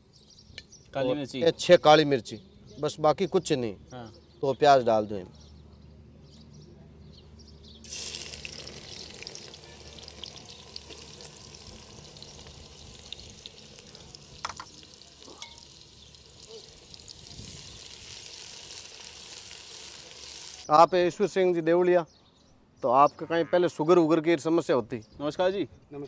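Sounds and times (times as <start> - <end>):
onions sizzling in oil: 7.8 - 20.7.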